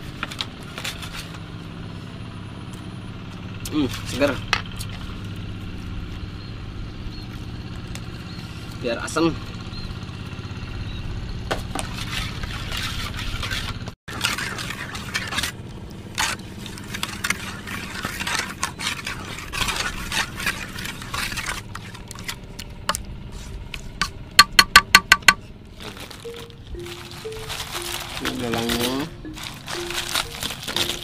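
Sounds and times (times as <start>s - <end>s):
utensil scraping bowl: 11.6s - 24.2s
ringing taps on bowl: 24.4s - 25.4s.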